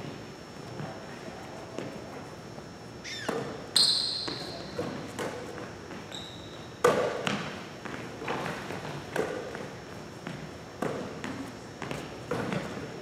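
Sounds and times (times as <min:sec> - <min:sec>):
sneaker squeak: 0:03.0 - 0:05.0, 0:05.9 - 0:07.3
basketball thuds in echoing gym: 0:03.2 - 0:05.4, 0:06.8 - 0:09.6, 0:10.2 - 0:12.9.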